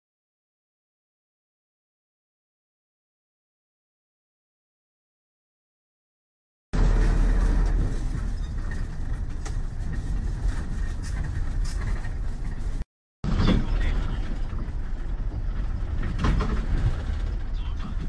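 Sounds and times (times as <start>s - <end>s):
bus engine and road rumble: 6.8s - 18.0s.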